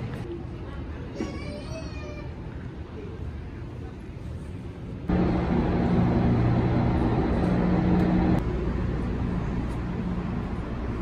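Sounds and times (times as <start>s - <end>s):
train engine droning: 5.0s - 11.0s.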